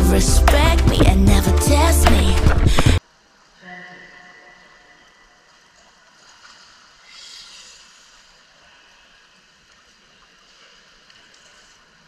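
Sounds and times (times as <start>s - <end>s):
pool water sloshing and lapping: 3.0s - 12.0s.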